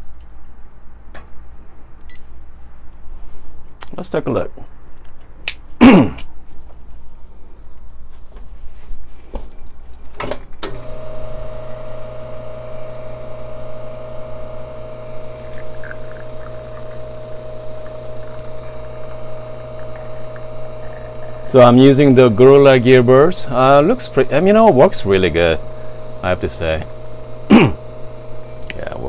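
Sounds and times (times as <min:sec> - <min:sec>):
espresso pump humming: 0:10.7 - 0:29.0.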